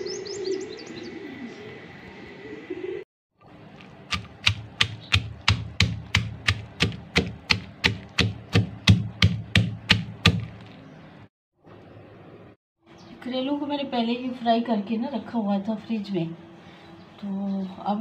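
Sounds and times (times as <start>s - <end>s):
pestle pounding in stone mortar: 3.8s - 10.7s.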